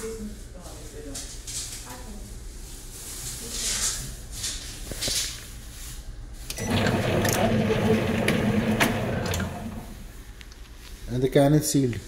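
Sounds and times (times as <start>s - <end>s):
machine motor humming: 6.5s - 10.2s.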